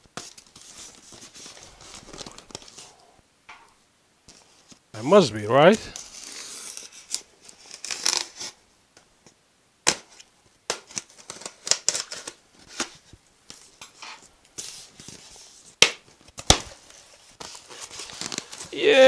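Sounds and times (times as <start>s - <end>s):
foam packing scraping and rustling: 16.8s - 18.8s.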